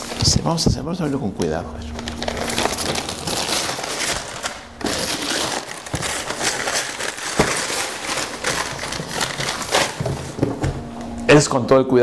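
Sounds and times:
paper tearing and crumpling: 1.9s - 10.4s.

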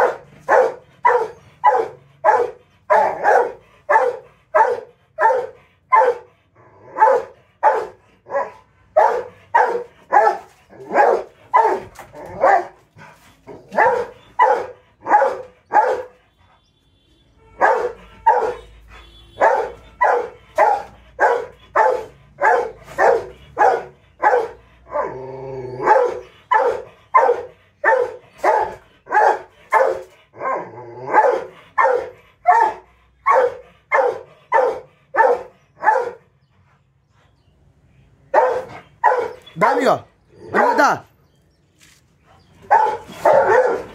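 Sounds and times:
dog barking: 0.0s - 6.3s, 6.9s - 12.8s, 13.6s - 16.2s, 17.6s - 25.1s, 25.8s - 36.3s, 38.3s - 41.1s, 42.6s - 43.9s.

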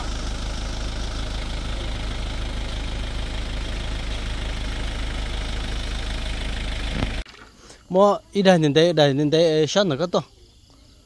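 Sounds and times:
truck engine idling: 0.0s - 7.2s.

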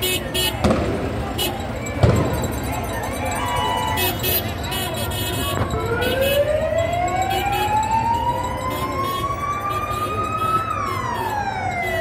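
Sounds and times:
street noise: 0.0s - 12.0s
siren wailing: 5.4s - 12.0s.

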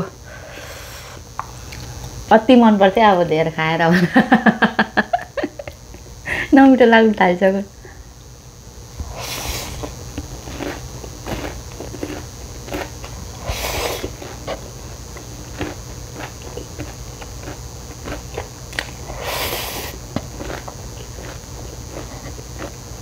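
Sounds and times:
noodle slurping: 9.0s - 14.6s, 19.0s - 21.3s.

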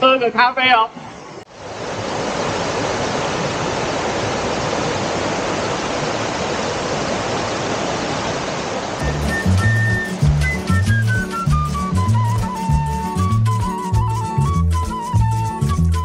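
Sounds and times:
stream rushing over rocks: 1.4s - 13.2s.

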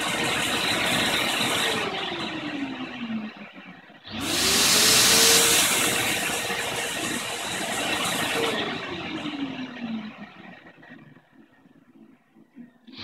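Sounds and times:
vacuum cleaner rushing noise: 0.0s - 3.2s, 4.1s - 10.6s
electric sander whining: 4.1s - 11.5s.

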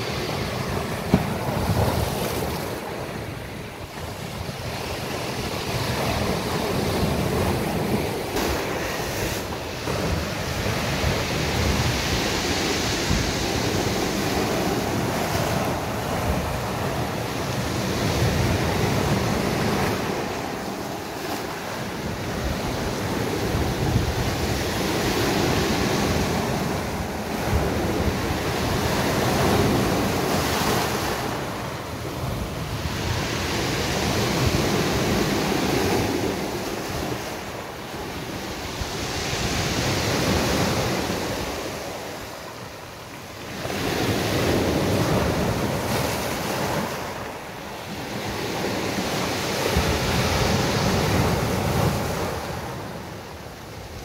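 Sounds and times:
wind buffeting microphone: 0.0s - 42.2s
sea waves breaking on beach: 0.0s - 54.0s.

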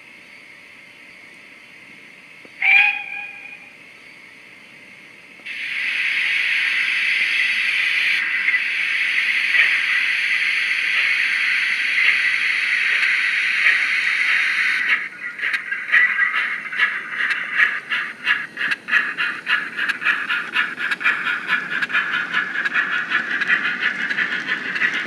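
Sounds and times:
steam engine whistle: 2.6s - 3.7s
steam hissing: 5.4s - 25.0s.

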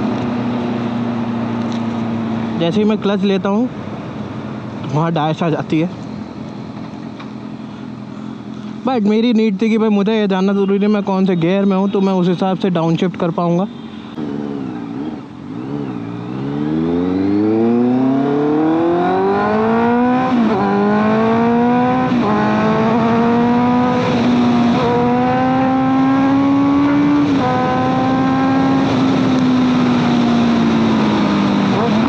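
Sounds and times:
wind and road noise: 0.0s - 32.0s
motorcycle engine accelerating: 14.1s - 32.0s.

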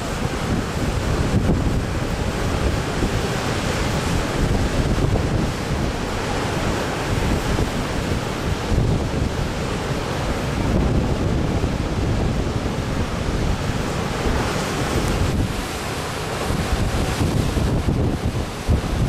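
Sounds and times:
surf breaking over rocks: 0.0s - 19.0s
wind buffeting microphone: 0.0s - 19.0s.

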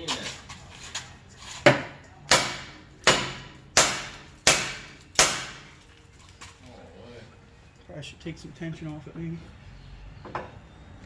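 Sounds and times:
hammer striking metal: 1.7s - 5.6s.

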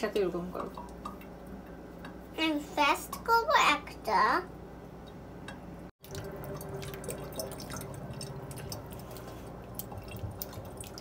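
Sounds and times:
water splashing and dripping: 6.0s - 11.0s.

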